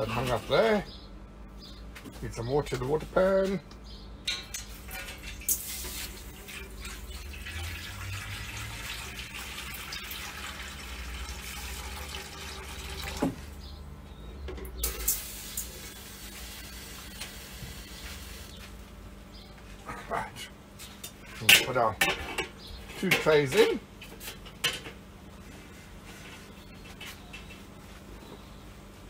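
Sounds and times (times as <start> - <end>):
water pouring into metal pan: 5.4 - 13.4.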